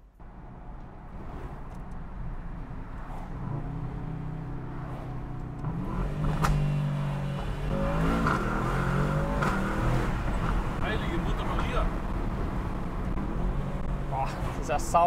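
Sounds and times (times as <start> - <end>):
car engine accelerating: 2.9 - 15.0.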